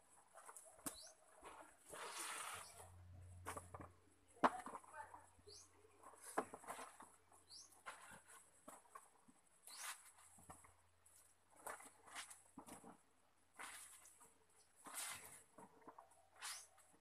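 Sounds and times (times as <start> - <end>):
bird chirping: 0.8 - 1.3, 5.4 - 5.9, 7.4 - 7.8.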